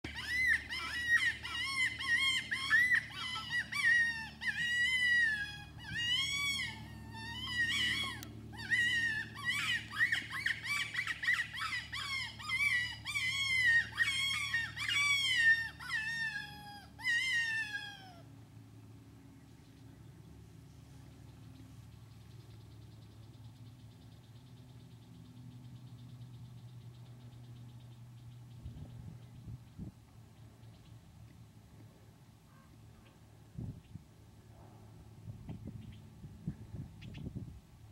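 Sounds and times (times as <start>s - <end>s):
squealing distress cries from call: 0.1s - 18.3s.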